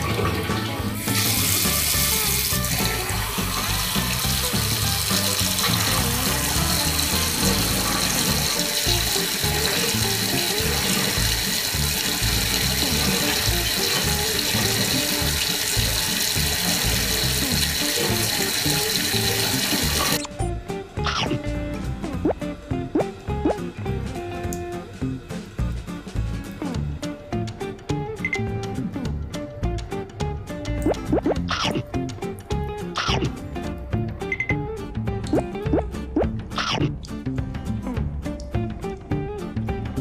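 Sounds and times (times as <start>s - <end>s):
tap water running into sink: 0.0s - 20.3s
background music: 0.0s - 40.0s.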